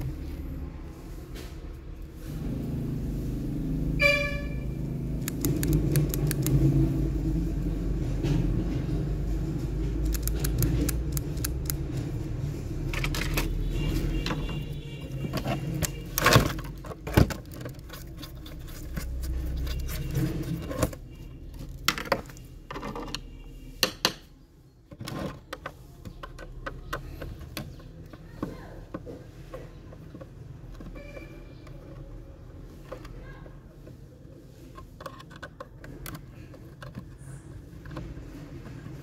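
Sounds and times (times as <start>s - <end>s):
plastic parts clicking and knocking: 5.2s - 6.7s, 8.3s - 12.2s, 12.8s - 24.3s, 24.9s - 34.0s, 34.6s - 39.0s.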